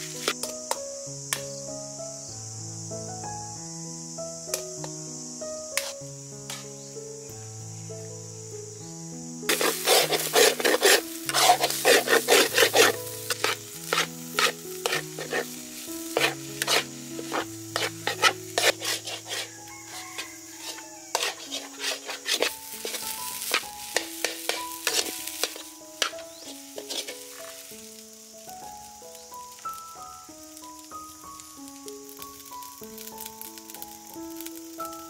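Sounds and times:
metal ladle scraping a wok: 0.0s - 0.5s, 5.8s - 6.7s, 9.5s - 27.7s
light sizzle: 0.0s - 35.0s.

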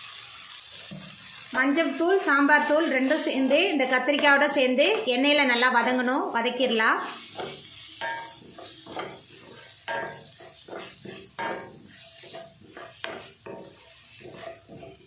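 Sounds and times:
oil sizzling: 0.0s - 15.0s
wooden spatula scraping steel pan: 7.0s - 15.0s.

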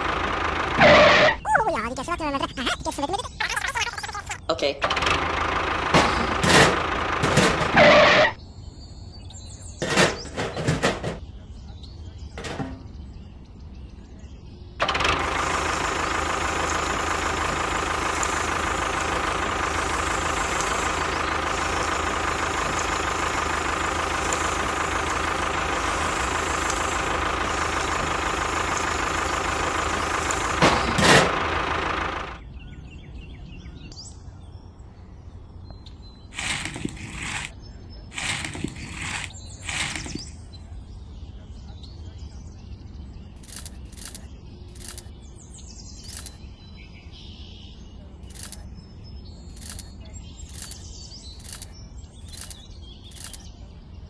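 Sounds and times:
small electric motor and gearbox: 14.8s - 32.4s, 36.4s - 40.4s, 43.4s - 45.1s, 46.0s - 46.4s, 48.2s - 48.7s, 49.5s - 53.5s.

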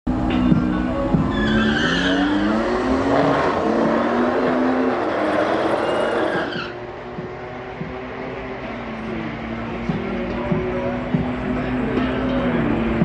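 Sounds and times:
car engine revving: 0.1s - 13.0s
tyres squealing: 1.3s - 2.7s.

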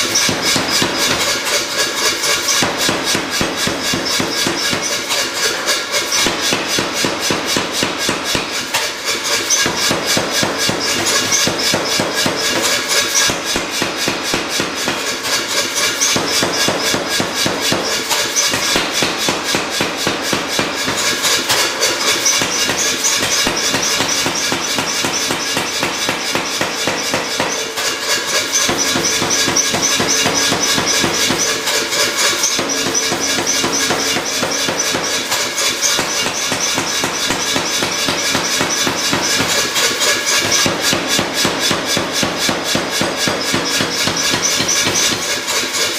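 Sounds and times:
power hammer pounding steel: 0.0s - 45.9s.

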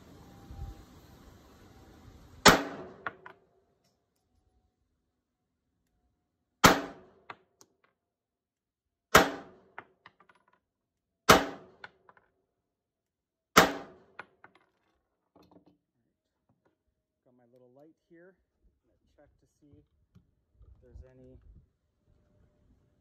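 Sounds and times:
pistol shots: 2.4s - 3.2s, 6.6s - 7.3s, 9.1s - 9.7s, 11.3s - 11.8s, 13.6s - 14.1s.

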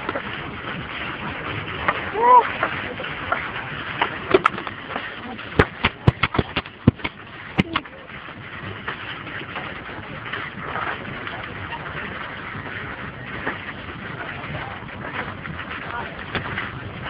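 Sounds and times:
bamboo slats clacking under footsteps: 1.8s - 9.0s.

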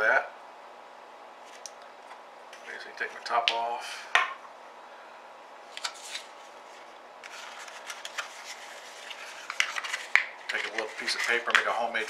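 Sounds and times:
paper rustling and crinkling: 5.7s - 12.0s.

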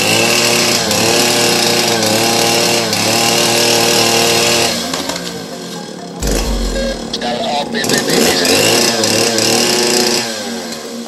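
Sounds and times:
chainsaw cutting wood: 0.0s - 5.4s, 7.9s - 11.0s.

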